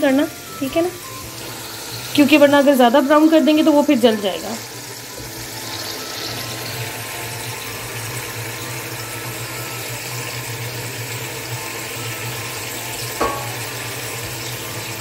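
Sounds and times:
food bubbling and hissing: 0.0 - 15.0.

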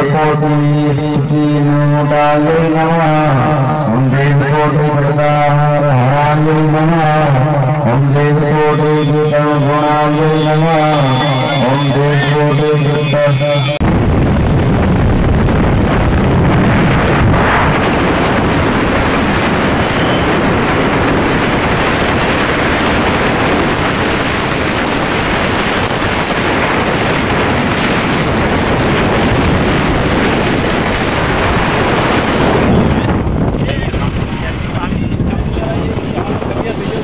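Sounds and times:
wind over microphone: 6.2 - 37.0.

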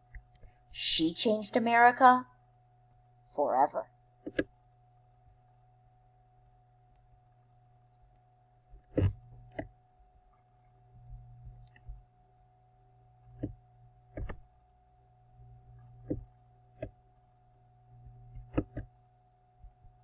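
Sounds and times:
faint electrical hum: 0.0 - 20.0
sharp clicks and taps: 13.4 - 14.4.

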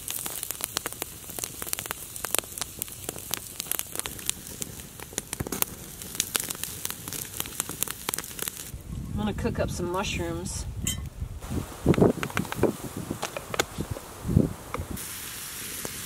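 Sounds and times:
campfire crackling: 0.0 - 16.0.

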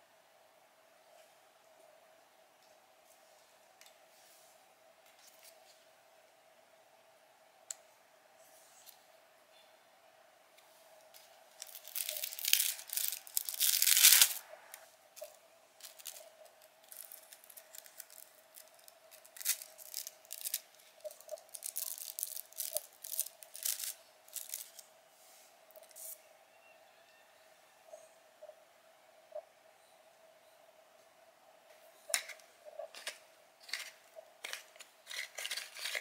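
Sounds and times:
paper tearing and crinkling: 11.6 - 14.4, 16.8 - 20.7, 21.3 - 24.8.

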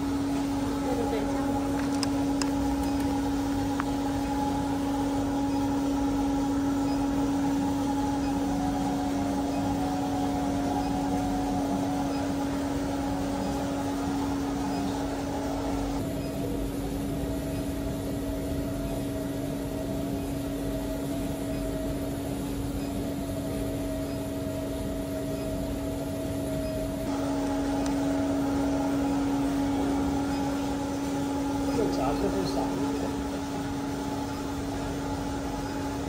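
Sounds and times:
faint high tones: 0.0 - 16.6
furnace electrical hum: 0.0 - 36.0.

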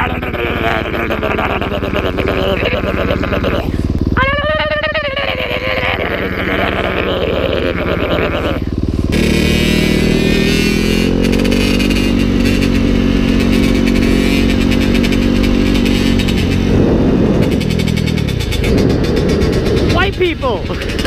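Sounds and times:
dirt bike engine: 0.0 - 21.0.

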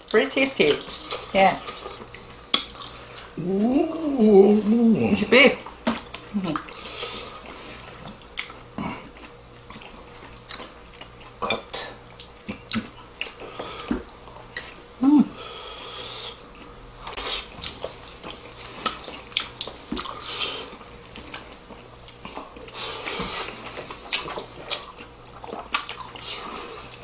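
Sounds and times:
people chewing: 0.7 - 14.8, 15.6 - 27.0.

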